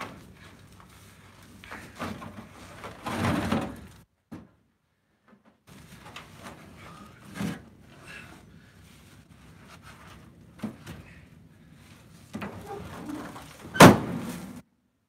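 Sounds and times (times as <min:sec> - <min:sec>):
wood scraping on truck bed: 0:01.7 - 0:04.0, 0:12.3 - 0:14.6.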